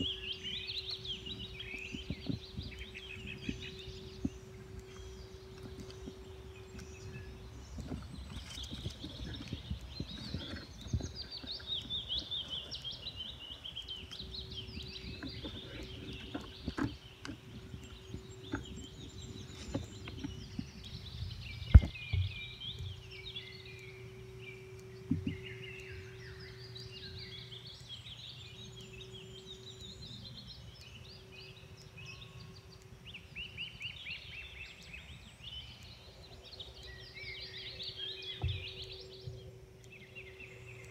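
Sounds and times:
faint steady hum: 0.0s - 40.9s
songbirds chirping: 0.0s - 40.9s.

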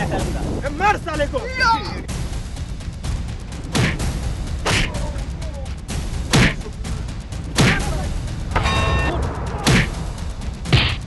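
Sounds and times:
steady low rumble: 0.0s - 11.0s
heavy whooshing hits: 6.2s - 11.0s.

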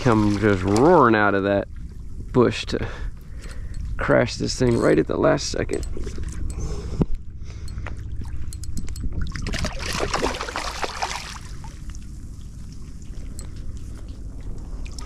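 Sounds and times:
fish splashing in water: 0.0s - 1.1s, 9.2s - 13.2s
water trickling and dripping: 0.0s - 2.4s, 7.7s - 15.0s.

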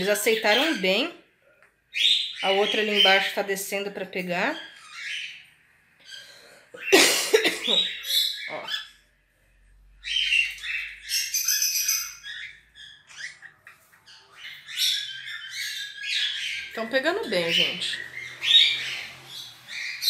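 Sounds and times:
parrots chirping and chattering: 0.0s - 20.0s
parrot squawk: 10.0s - 16.8s, 17.4s - 20.0s.

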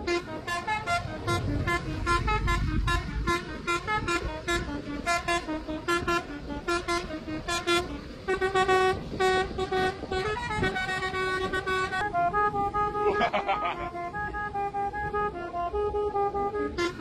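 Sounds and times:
low traffic rumble: 0.0s - 17.0s
multi-tone musical horn playing tune: 0.0s - 17.0s.

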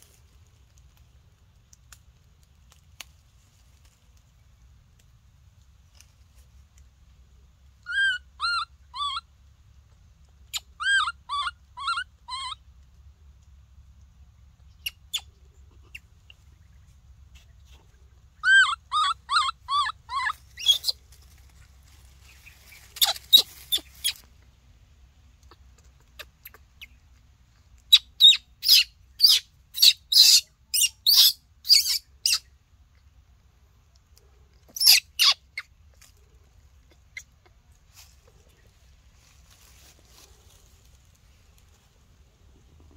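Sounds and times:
baby macaque screeching: 7.8s - 9.2s, 10.5s - 12.6s, 18.4s - 21.0s, 22.8s - 24.2s, 27.9s - 32.5s, 34.7s - 35.7s
baby macaque cooing: 7.9s - 9.2s, 10.5s - 12.6s, 18.4s - 21.0s, 27.9s - 32.4s, 34.8s - 35.7s.

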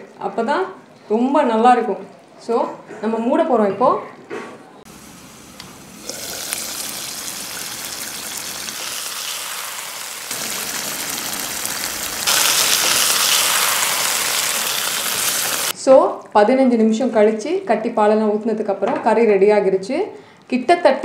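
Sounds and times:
curry bubbling and sizzling: 5.9s - 15.7s.

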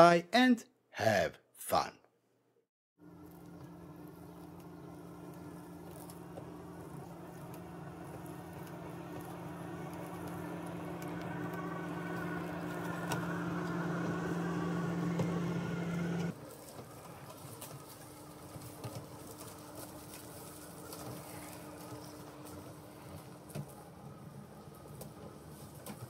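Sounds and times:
robotic lawn mower motor hum: 3.0s - 16.8s.

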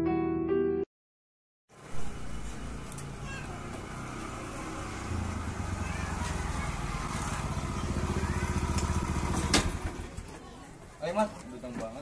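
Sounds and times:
motor scooter engine running: 1.8s - 10.3s.

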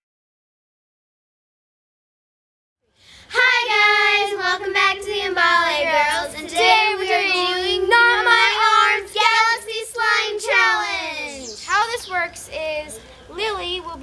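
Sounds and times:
girls singing together: 3.3s - 11.6s.

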